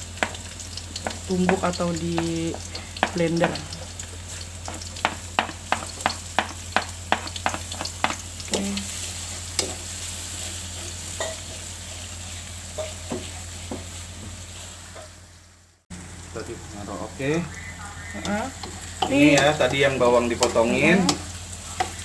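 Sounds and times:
food sizzling in oil: 0.0s - 22.0s
spatula scraping and tapping pan: 0.2s - 8.6s, 9.3s - 11.7s, 12.7s - 15.2s, 18.6s - 19.8s.

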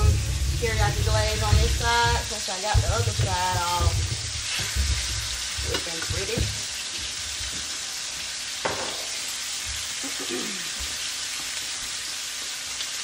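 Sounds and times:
lamb chops sizzling in a pan: 0.0s - 13.0s
sharp knock: 8.6s - 9.1s.

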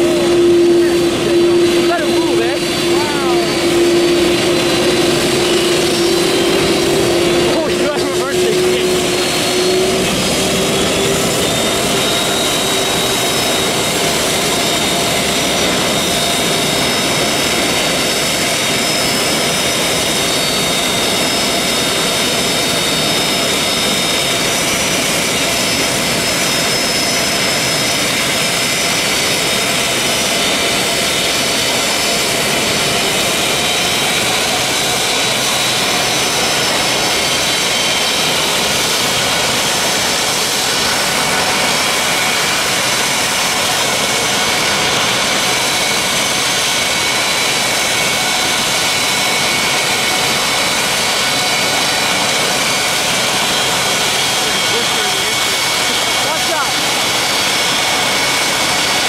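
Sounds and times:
jet engines whining: 0.0s - 59.0s.

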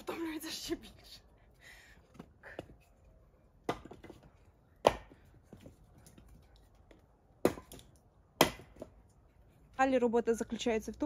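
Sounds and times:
logs knocking onto woodpile: 3.6s - 5.8s, 7.4s - 9.0s.

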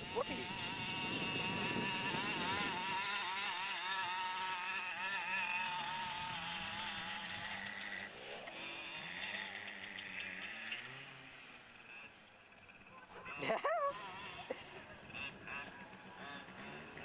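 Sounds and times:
two-stroke engine revving: 0.0s - 17.0s.

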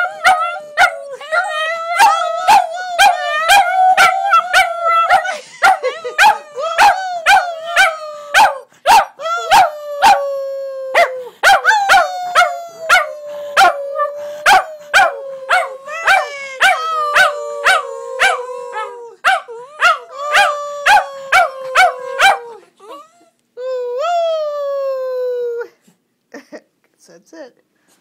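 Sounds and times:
dogs howling: 0.0s - 8.6s, 9.4s - 22.6s.

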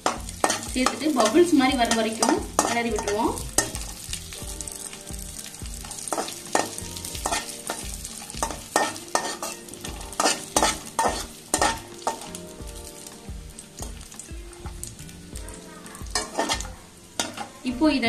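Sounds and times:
metal spatula scraping a pan: 0.0s - 4.2s, 4.8s - 12.4s, 15.5s - 17.8s
faint frying sizzle: 0.0s - 18.0s.

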